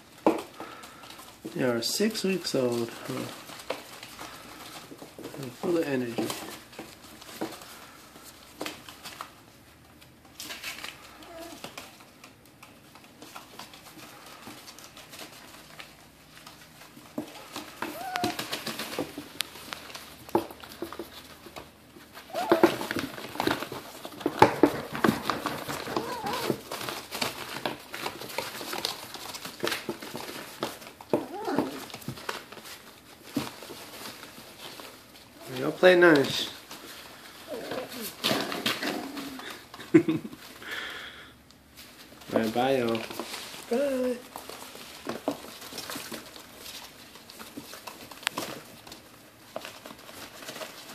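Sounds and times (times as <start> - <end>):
puppies scuffling on paper: 0.0 - 50.9
puppy yips: 17.8 - 18.5, 22.3 - 22.9, 25.9 - 26.6.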